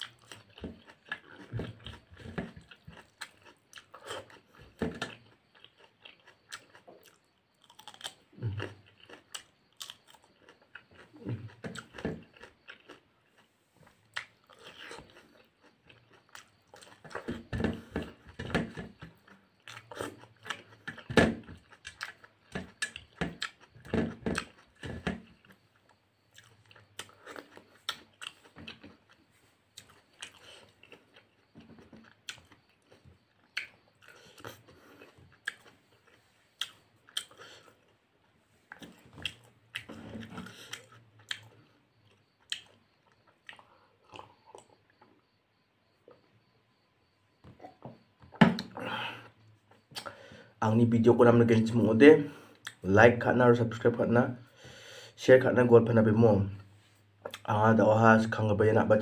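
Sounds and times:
chewing food with mouth clicks: 0:00.0 - 0:50.5, 0:52.4 - 0:52.8, 0:56.6 - 0:57.5.

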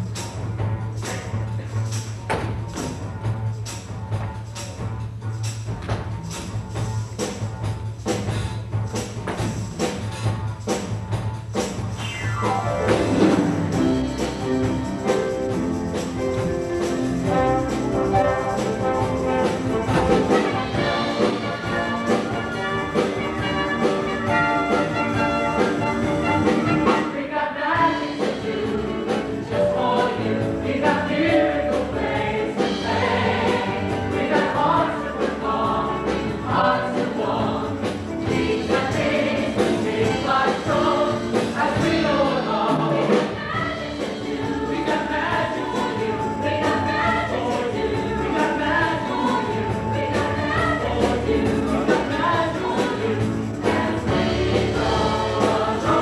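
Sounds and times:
instrumental accompaniment: 0:00.0 - 0:56.0
ensemble singing together: 0:17.2 - 0:56.0.

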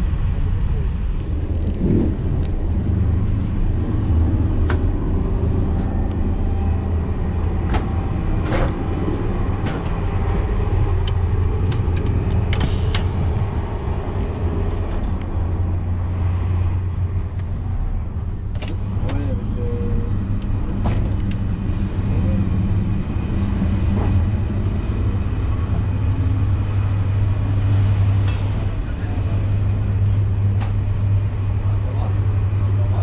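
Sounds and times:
train cabin deep rumble: 0:00.0 - 0:33.0.

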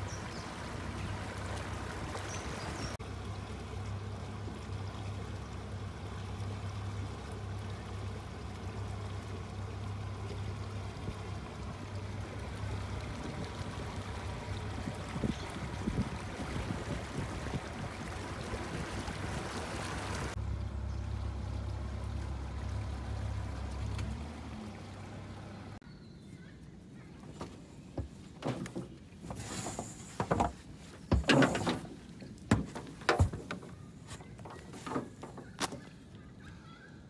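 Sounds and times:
boat motor humming: 0:00.0 - 0:25.8, 0:27.9 - 0:36.4
hull knocking and scraping on bank: 0:27.3 - 0:35.9.

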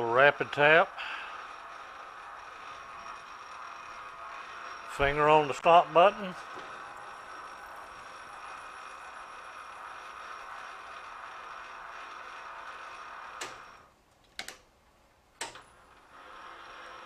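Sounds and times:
metal lathe whining: 0:00.0 - 0:13.9, 0:15.4 - 0:17.0
sharp clicks: 0:13.4 - 0:14.7.

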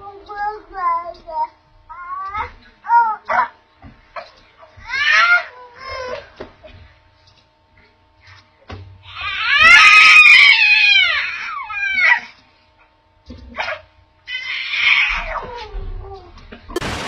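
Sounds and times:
high-pitched wailing cries: 0:04.8 - 0:06.3, 0:09.0 - 0:12.4, 0:13.6 - 0:16.3.

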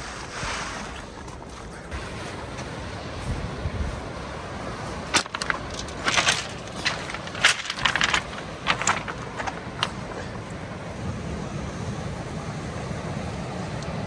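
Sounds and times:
surf and wind rushing: 0:00.0 - 0:14.0
footsteps on pebbles: 0:05.0 - 0:10.2.

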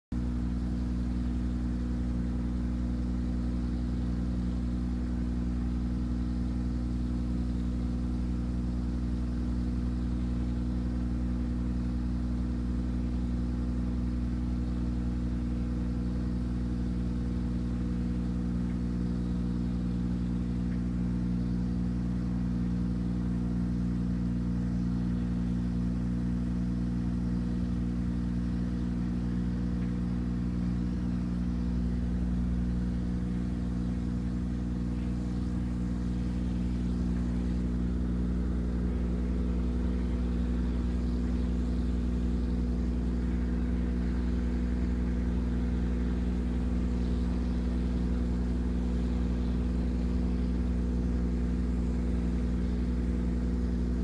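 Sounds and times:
render spraying machine engine running: 0:00.2 - 0:54.0.

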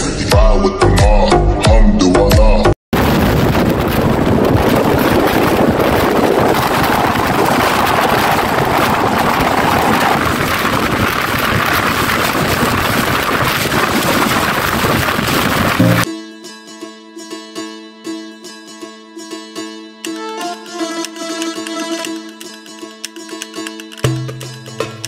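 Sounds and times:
music: 0:00.0 - 0:02.8, 0:15.8 - 0:25.0
wind rushing on microphone: 0:02.9 - 0:16.1
moving train running noise: 0:04.5 - 0:16.1.

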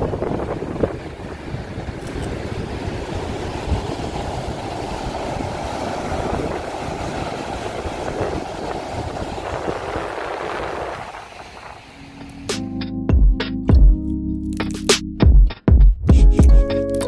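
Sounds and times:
waves breaking on rocks: 0:00.0 - 0:12.3
wind buffeting microphone: 0:00.0 - 0:12.5.

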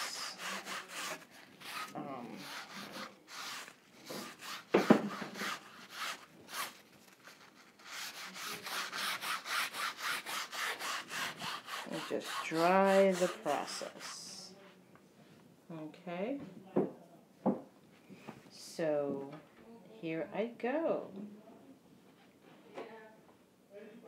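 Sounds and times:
paper towel rubbing on canvas: 0:00.0 - 0:14.5.

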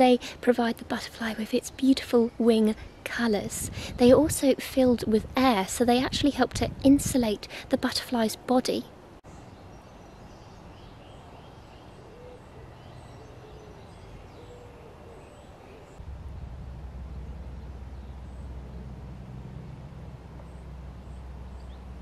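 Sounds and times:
birdsong chirps: 0:09.2 - 0:22.0
low rumble: 0:16.0 - 0:22.0.

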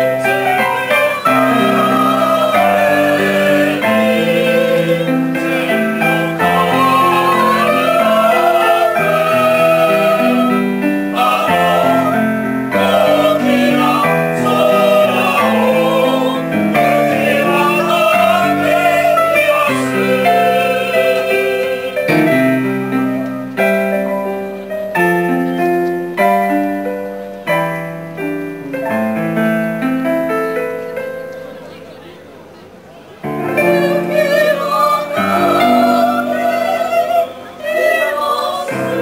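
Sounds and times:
mixed choir singing: 0:00.0 - 0:23.9, 0:33.2 - 0:39.0.

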